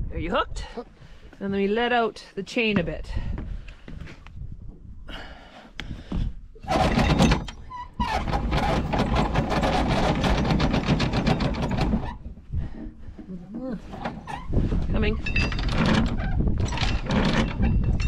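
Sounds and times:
anchor chain rattling: 6.6s - 12.4s, 13.8s - 18.0s.

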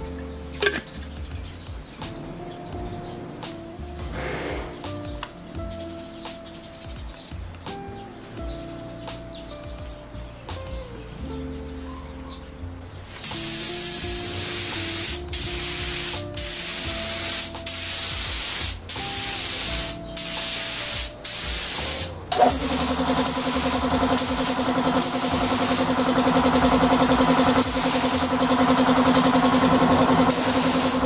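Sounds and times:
spray gun hissing: 13.2s - 31.0s
motor running: 22.3s - 31.0s.

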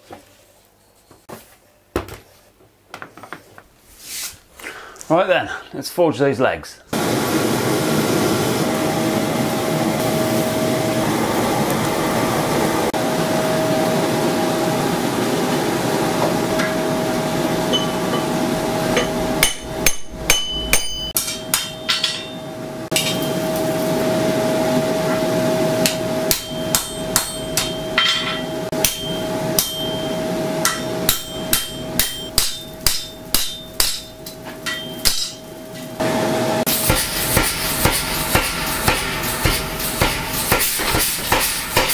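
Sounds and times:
forge rushing hum: 7.0s - 41.9s
hammer striking metal on anvil: 17.7s - 23.5s, 25.8s - 35.6s, 36.7s - 41.9s.

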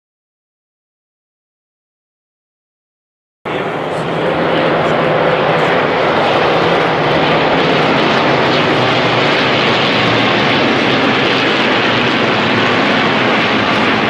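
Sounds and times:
propeller aircraft engines droning: 3.5s - 14.0s.

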